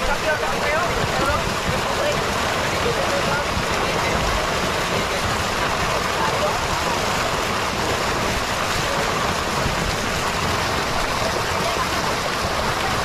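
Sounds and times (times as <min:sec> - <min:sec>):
water rushing and splashing: 0:00.0 - 0:13.0
faint voices: 0:10.8 - 0:13.0.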